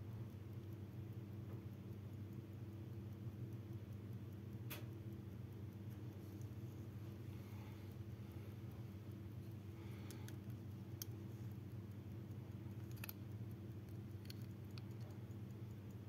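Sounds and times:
pocket watch clicks: 9.1 - 16.0.

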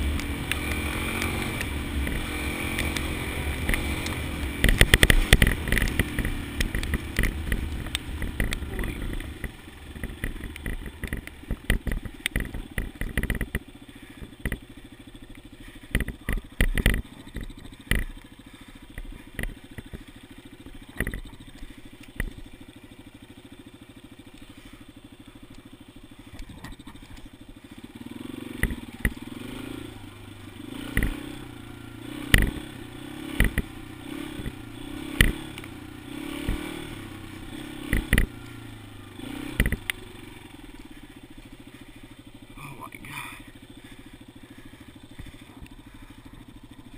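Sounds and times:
motorcycle engine running: 0.0 - 46.9
sharp knocks and clatter: 0.6 - 14.6, 15.9 - 18.2, 20.7 - 21.5, 32.3 - 32.6, 39.5 - 40.0.

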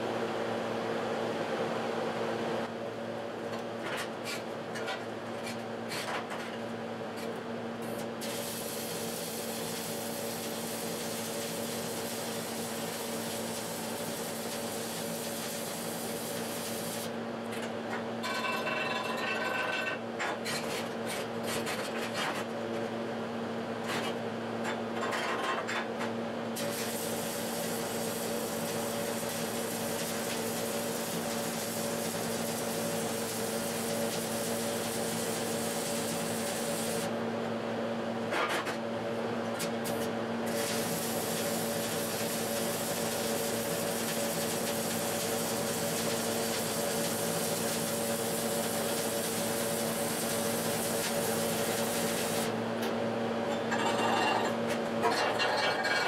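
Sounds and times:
arc welding crackling hiss: 8.2 - 17.1, 26.6 - 37.1, 39.9 - 52.6.

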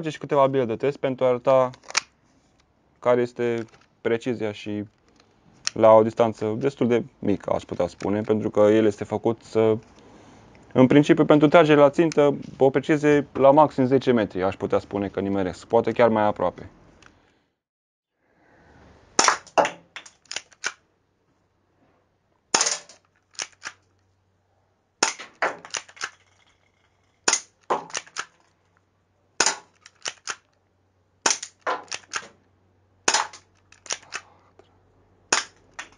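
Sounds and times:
airsoft pistol shots: 19.2 - 19.8, 22.5 - 23.0, 25.0 - 26.1, 27.3 - 28.3, 29.4 - 30.4, 31.2 - 32.3, 33.1 - 34.0.

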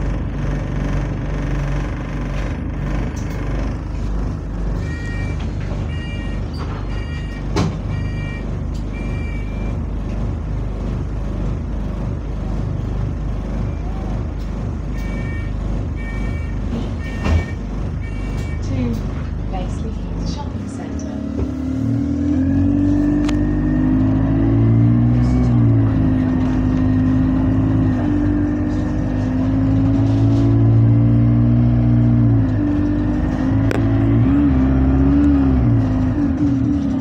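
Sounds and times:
bus diesel engine idling: 0.0 - 37.0
high door warning beeps: 4.8 - 9.7, 15.0 - 18.8.

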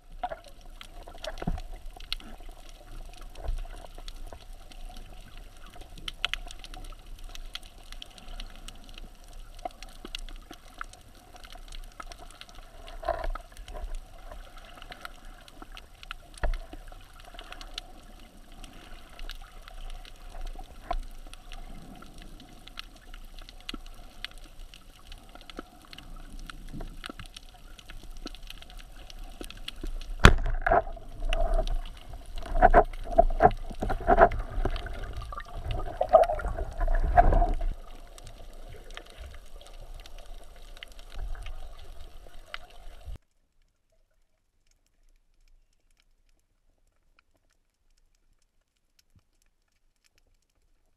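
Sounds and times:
faint clicks: 0.1 - 50.9
gurgling bubbles: 25.2 - 43.2.

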